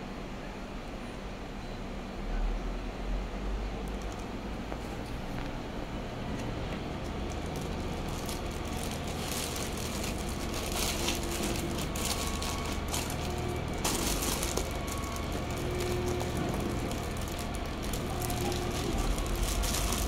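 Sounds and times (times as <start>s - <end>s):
plastic bag crinkling: 7.1s - 20.0s.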